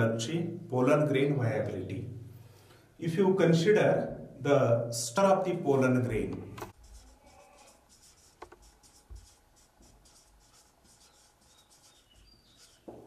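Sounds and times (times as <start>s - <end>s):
marker writing on whiteboard: 6.6s - 13.0s.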